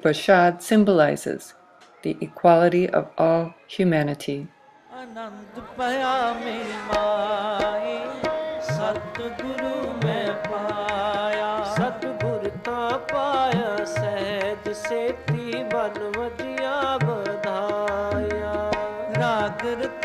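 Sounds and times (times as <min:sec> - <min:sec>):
harmonium: 0:05.6 - 0:20.0
tabla strokes: 0:05.7 - 0:20.0.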